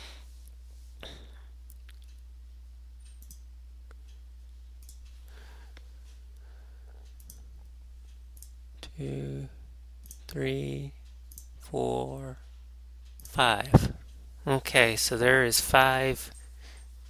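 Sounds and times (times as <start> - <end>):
low electrical hum: 0.0 - 17.0
computer mouse clicks: 3.1 - 3.4, 7.0 - 7.4, 11.3 - 11.5.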